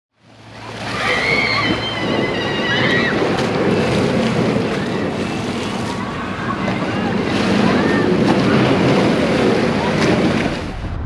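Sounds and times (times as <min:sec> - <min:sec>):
surf washing onto beach: 0:00.2 - 0:11.0
wind on microphone: 0:01.5 - 0:11.0.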